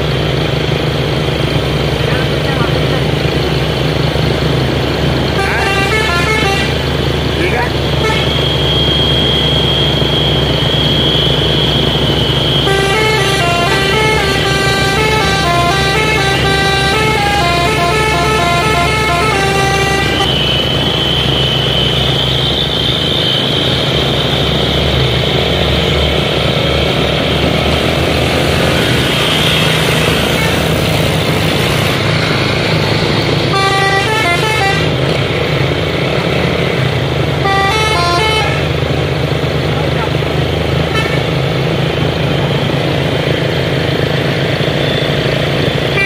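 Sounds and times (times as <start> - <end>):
high whine: 0.0 - 46.0
truck diesel engines: 0.0 - 46.0
musical air horn melody: 5.4 - 6.9, 8.0 - 10.2, 10.8 - 22.8, 33.5 - 35.0, 37.4 - 38.7.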